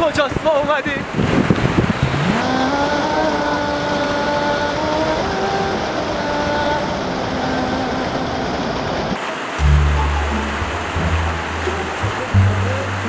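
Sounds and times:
faint sustained musical tones: 9.2s - 13.0s
water pouring over rocks: 9.2s - 13.0s.

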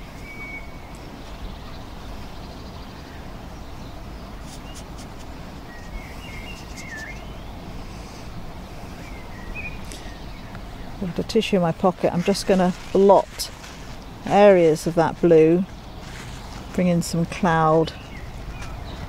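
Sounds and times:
outdoor background rumble: 0.0s - 19.0s
small bird chirping: 3.8s - 7.6s.

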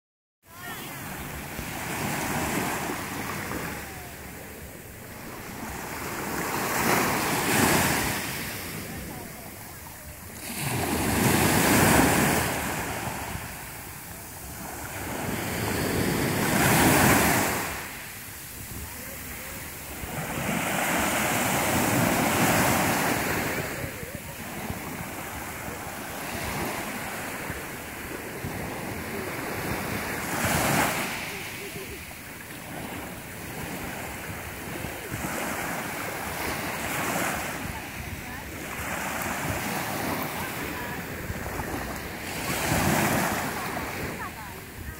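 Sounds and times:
waves washing up pebbly beach: 0.6s - 44.9s
wind rumbling on microphone: 32.2s - 44.9s.

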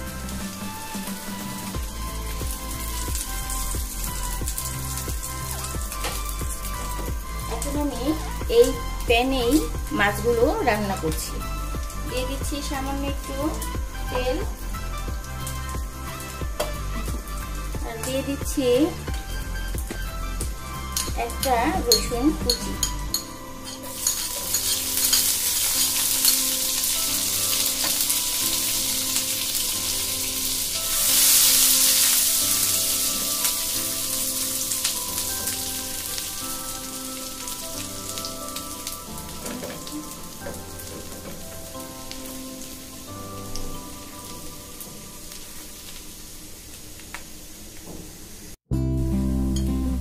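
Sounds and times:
garlic sizzling in oil: 0.0s - 48.6s
spatula stirring: 20.8s - 33.8s.

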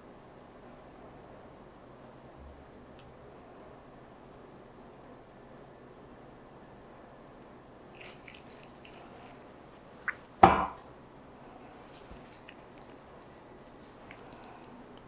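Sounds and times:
gloved hands rustling gauze: 8.0s - 10.2s, 11.8s - 14.6s
short thump: 10.4s - 10.8s.

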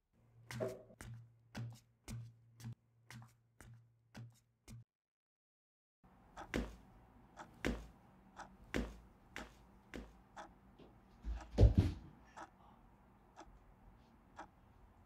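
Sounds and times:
footsteps on floor: 10.8s - 12.1s.

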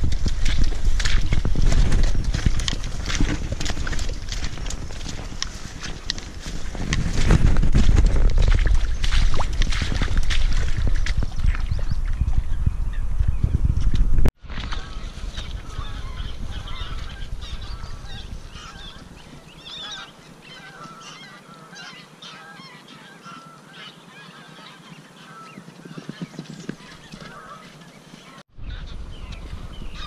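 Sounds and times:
geese honking in flight: 14.7s - 25.6s.

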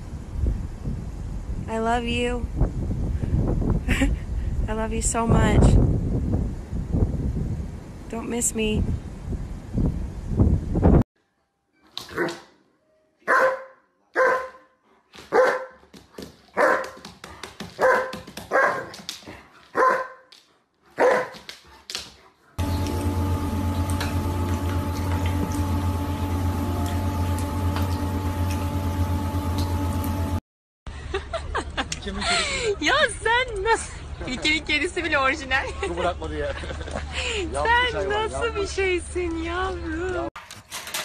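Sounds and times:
large dog barking: 13.3s - 14.7s, 15.3s - 15.8s, 16.6s - 17.0s, 17.8s - 18.9s, 19.7s - 20.2s, 20.9s - 21.4s
steady hum: 22.6s - 30.4s.

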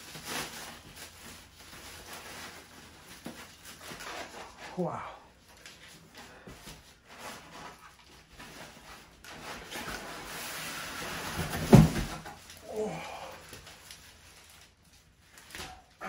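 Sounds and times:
plastic wrapping rustling: 0.0s - 16.0s
person grunting: 12.6s - 13.4s.

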